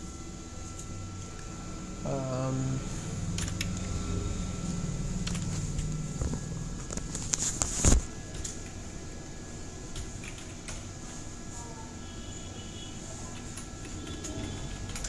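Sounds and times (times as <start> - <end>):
low background hum: 0.0 - 15.0
keyboard keystrokes: 3.4 - 3.8.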